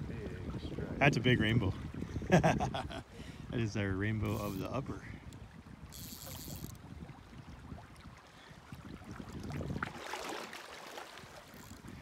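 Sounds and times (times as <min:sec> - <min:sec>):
wind rumbling on microphone: 0:00.0 - 0:12.0
river rippling over stones: 0:09.6 - 0:12.0.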